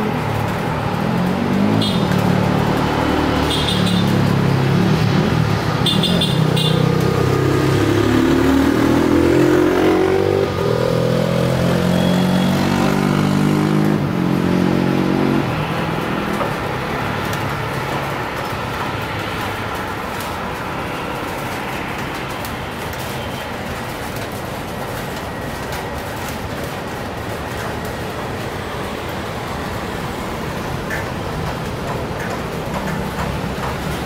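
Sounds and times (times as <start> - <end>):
vehicle engines revving: 0.0 - 23.2.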